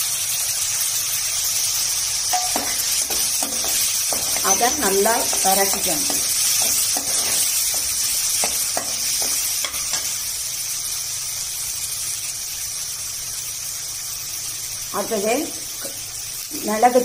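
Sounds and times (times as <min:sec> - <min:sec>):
food sizzling in hot oil: 0:00.0 - 0:17.0
metal spoon scraping pan: 0:02.3 - 0:10.2.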